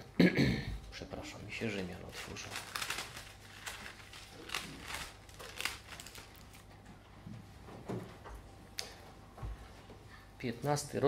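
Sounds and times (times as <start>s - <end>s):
thin pages rustling: 2.0s - 6.7s.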